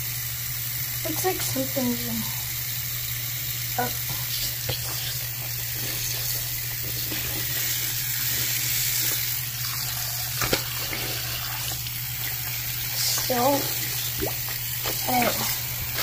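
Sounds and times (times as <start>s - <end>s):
tap water splashing on cloth: 9.0s - 16.0s.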